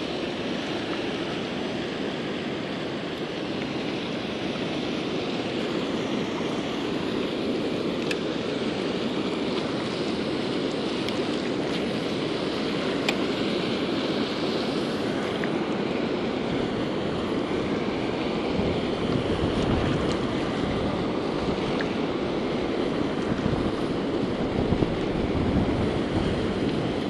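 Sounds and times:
wind noise on microphone: 14.6s - 27.0s.

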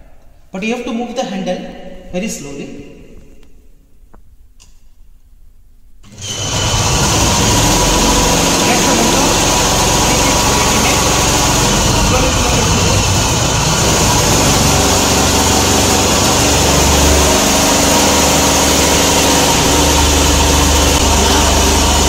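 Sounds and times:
motor hum and whir: 6.0s - 22.0s.

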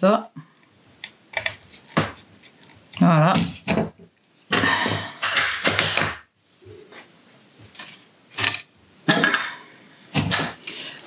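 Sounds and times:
plastic rubbing and rustling: 1.0s - 4.5s.

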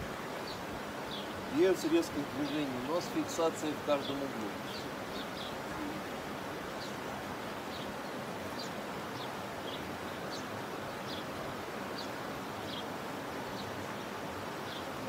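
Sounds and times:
steady background hiss: 0.0s - 15.0s
small bird chirping: 0.4s - 1.3s.

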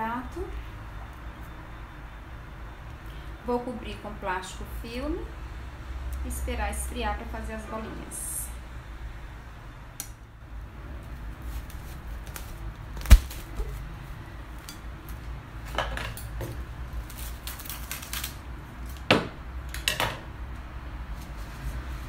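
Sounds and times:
cling film crinkling: 11.1s - 13.9s, 16.9s - 18.5s.

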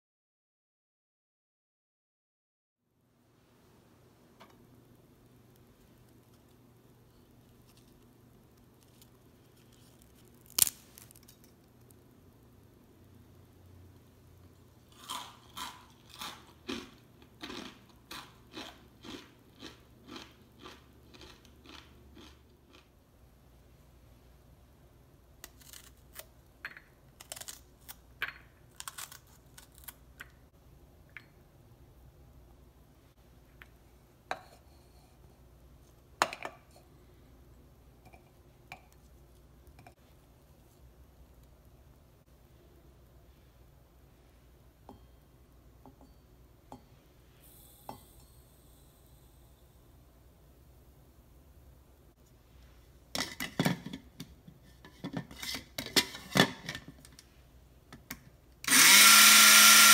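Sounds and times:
small crumbly crackles: 7.3s - 12.0s
knife slicing pepper crunches: 9.0s - 11.5s, 28.7s - 30.0s
crisp snack snapping: 10.0s - 12.0s.

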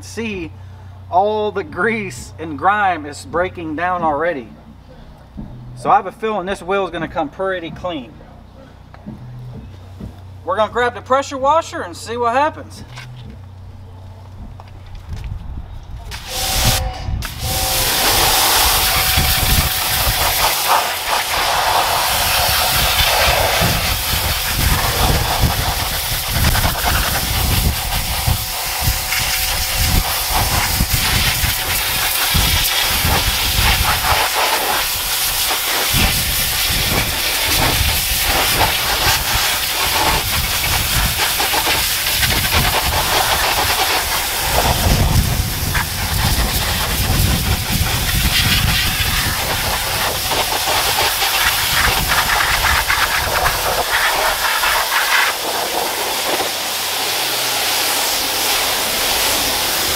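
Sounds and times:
pressure washer spray hiss: 16.1s - 59.9s.

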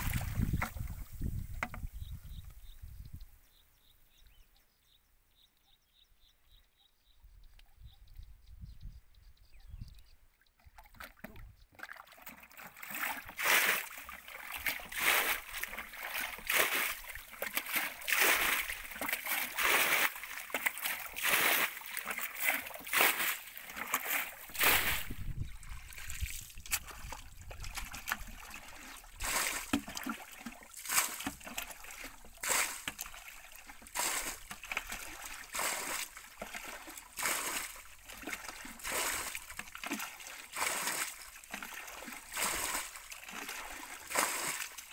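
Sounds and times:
hands splashing in muddy water: 0.0s - 1.4s, 10.8s - 44.9s.

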